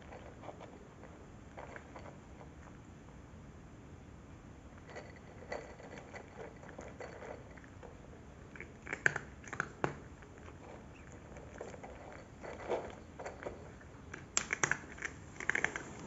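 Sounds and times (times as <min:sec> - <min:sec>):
cat crunching dry kibble: 0:05.2 - 0:16.0.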